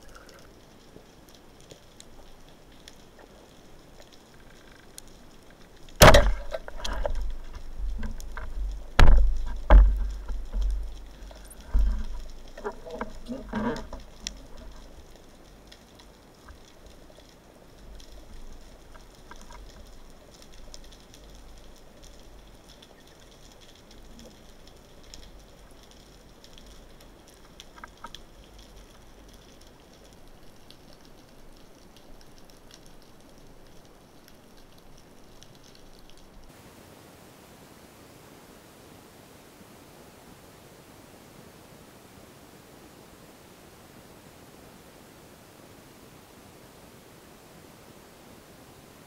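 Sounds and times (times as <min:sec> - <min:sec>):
rumbling movement in water: 0:00.0 - 0:36.5
faint water noise: 0:00.0 - 0:49.0
speargun firing underwater: 0:06.0 - 0:07.1.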